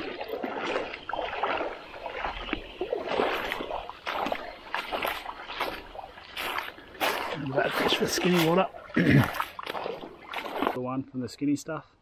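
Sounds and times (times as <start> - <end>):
creek water splashing: 0.0 - 11.5.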